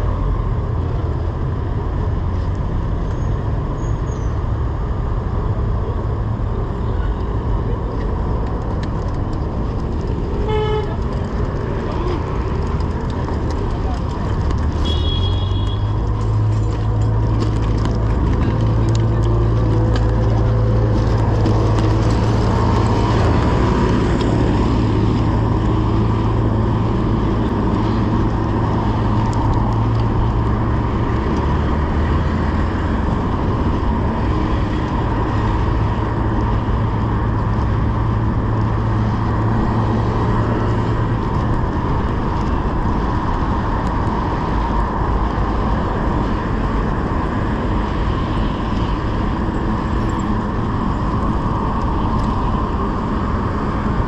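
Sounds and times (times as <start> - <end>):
bicycle road noise: 0.0 - 54.0
wind noise: 0.0 - 54.0.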